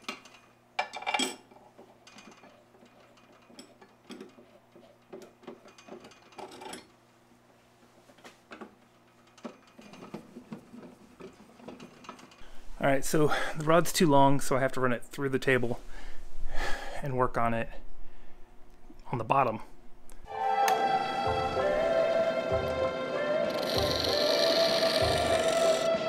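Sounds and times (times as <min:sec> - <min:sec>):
faint steady hum: 0:00.0 - 0:26.0.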